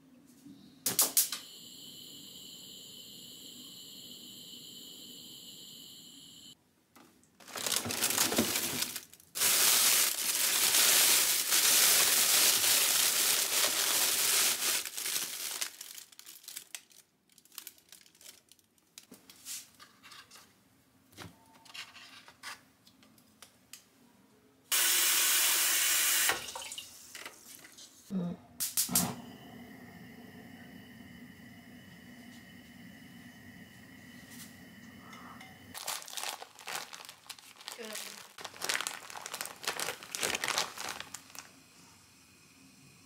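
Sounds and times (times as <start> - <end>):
kitchen tap water running: 24.7 - 27.1.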